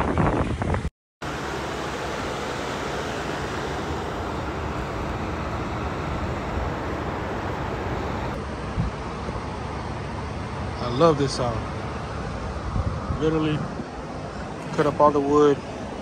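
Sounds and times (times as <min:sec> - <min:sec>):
steady rushing noise: 0:00.0 - 0:16.0.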